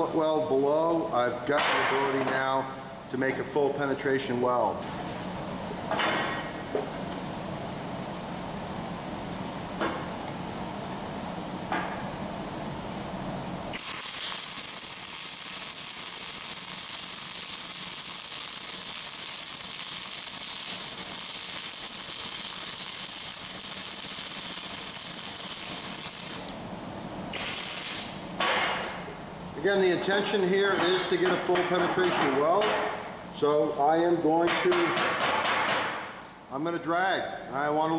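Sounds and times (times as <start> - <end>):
low steady hum: 0.0 - 35.1
welding arc crackling hiss: 13.7 - 26.6, 27.2 - 28.9.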